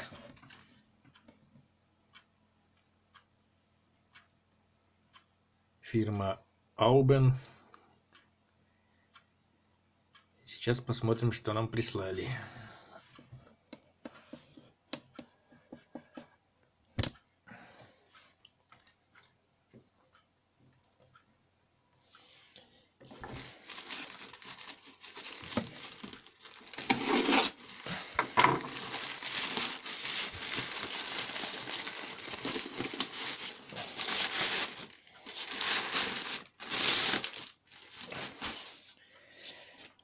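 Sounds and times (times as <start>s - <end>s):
plastic bag crinkling: 23.0s - 38.9s.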